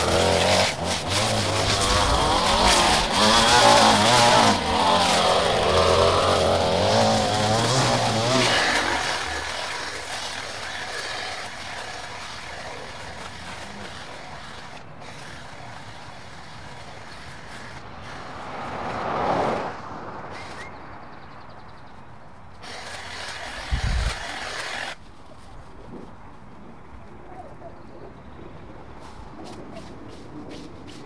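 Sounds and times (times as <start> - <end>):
car driving past: 17.8 - 21.6.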